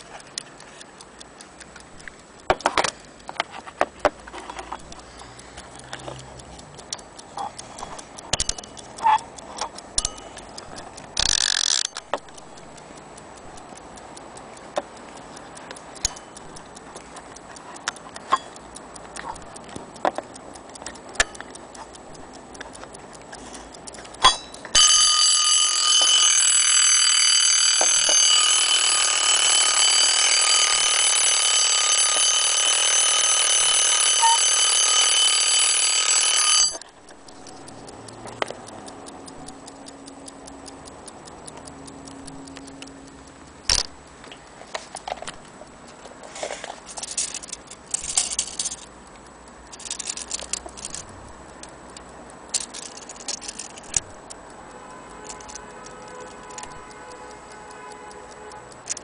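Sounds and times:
alarm clock ticking: 0.0 - 59.0
alarm bell ringing: 24.2 - 36.8
handling clicks: 40.9 - 51.6, 52.4 - 54.4, 55.1 - 56.9.

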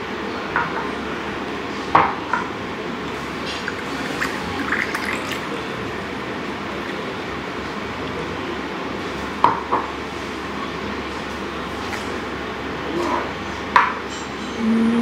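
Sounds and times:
drink pouring into cup: 3.0 - 8.4.

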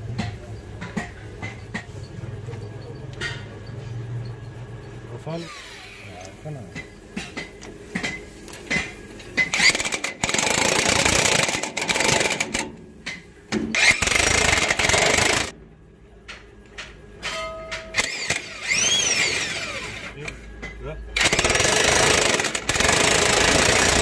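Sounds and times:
impact wrench hammering: 6.7 - 15.6, 16.3 - 19.5.

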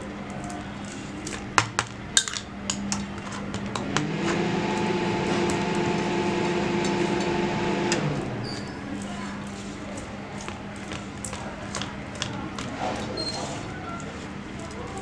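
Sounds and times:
steady machine hum: 3.5 - 9.1.

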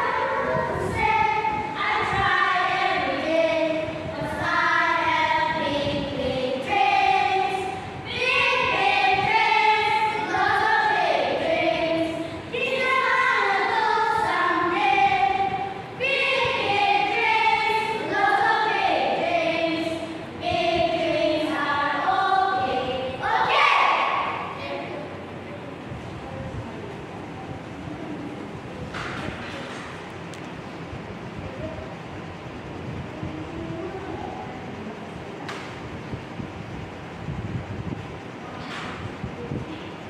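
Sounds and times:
children's choir singing: 0.0 - 25.4.

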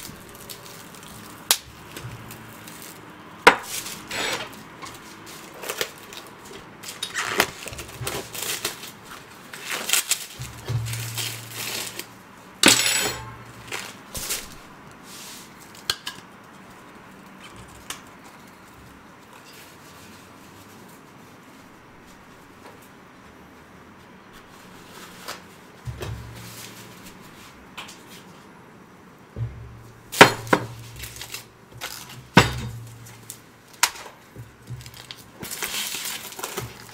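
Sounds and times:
packaging rustling: 0.0 - 12.2, 30.4 - 36.9.

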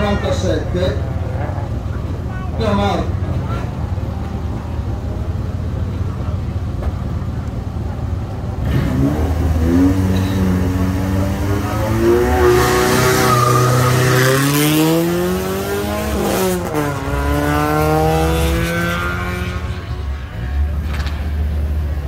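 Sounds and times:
car engine revving hard: 8.6 - 20.1.

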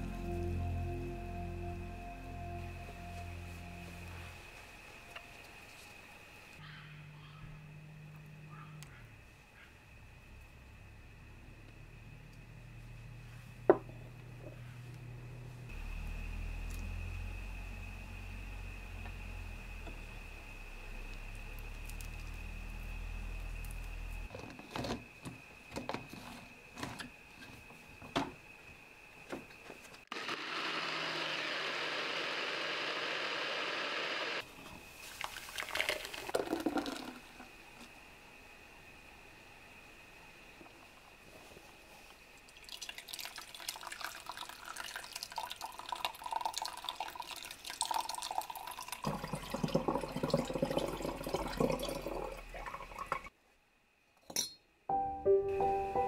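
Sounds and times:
blender running: 30.1 - 34.4
milk trickling and dripping into bowl: 35.2 - 37.2, 42.5 - 53.3.

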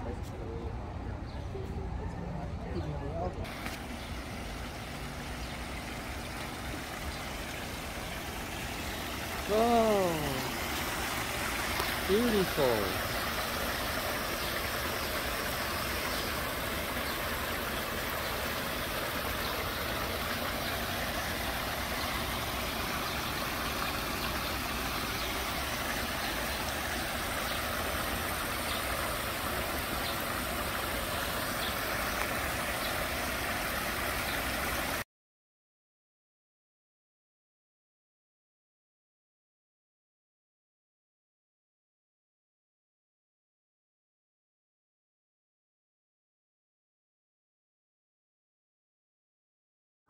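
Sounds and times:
water rushing down cascade: 3.4 - 35.0.

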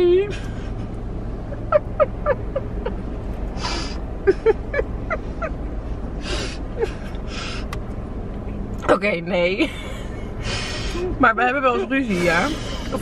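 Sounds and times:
low steady hum: 0.0 - 13.0
women laughing: 0.3 - 5.7, 6.8 - 7.2
loud gasping breaths: 6.2 - 7.7.

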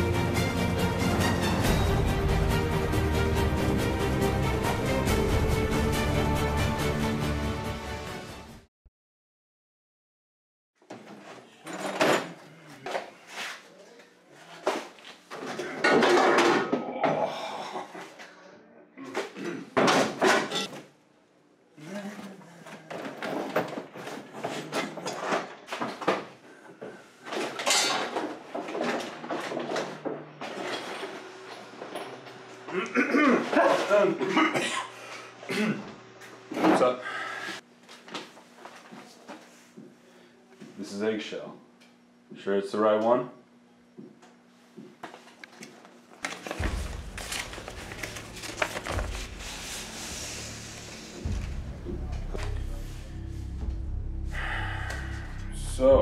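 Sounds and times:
paper rustling and crackling: 46.2 - 50.2
rummaging through cardboard boxes: 46.3 - 50.4.

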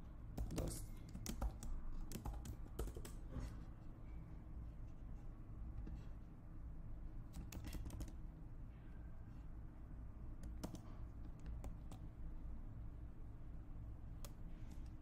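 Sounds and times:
low steady hum: 0.0 - 15.0
keyboard and mouse clicks: 0.4 - 3.2, 7.3 - 8.2, 10.4 - 12.0.

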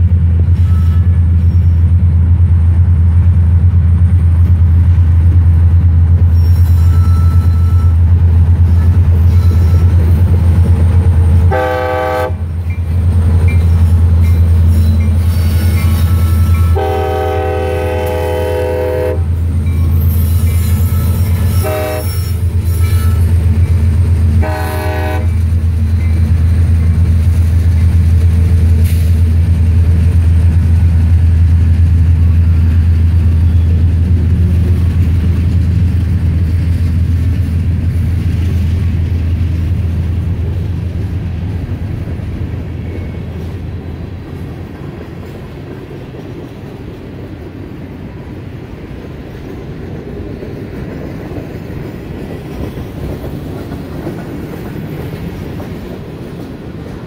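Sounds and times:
train rumble: 0.0 - 57.0
locomotive horn blasts: 11.5 - 12.5, 16.4 - 19.4, 21.4 - 23.2, 24.4 - 25.4
train wheels clattering: 41.7 - 57.0.

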